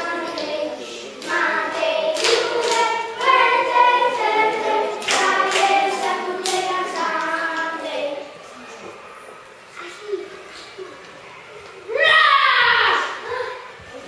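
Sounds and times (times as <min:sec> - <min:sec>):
children singing together: 0:00.0 - 0:08.9.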